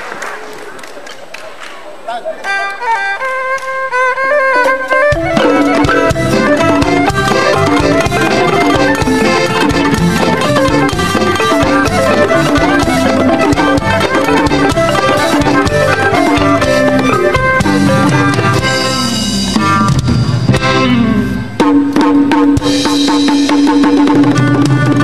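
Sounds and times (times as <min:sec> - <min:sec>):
two-string fiddle: 0:02.5 - 0:19.3
steady drum beat: 0:05.1 - 0:25.0.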